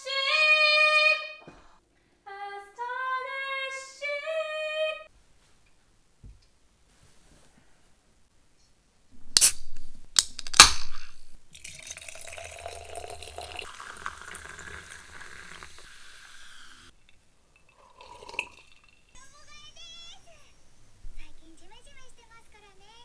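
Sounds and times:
person sipping: 10.9s - 19.1s
fizzy drink pouring over ice: 11.5s - 19.2s
glass clinking: 11.6s - 19.4s.

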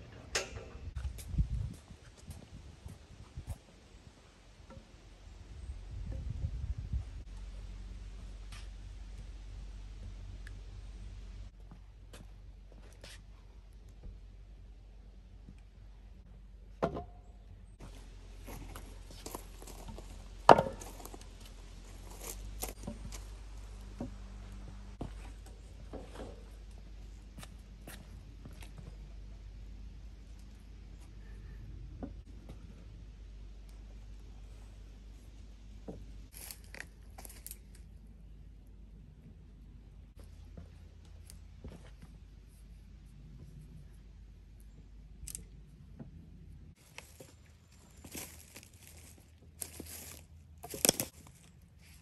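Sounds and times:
steady low rumble: 0.0s - 16.7s
wooden boards knocking: 20.5s - 20.8s.

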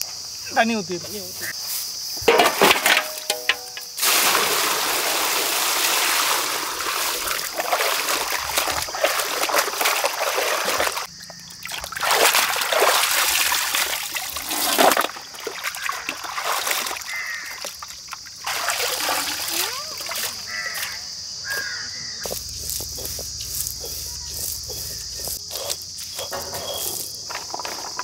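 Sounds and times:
water splashing and sloshing: 2.2s - 21.1s
water streaming into basin: 4.0s - 20.6s.

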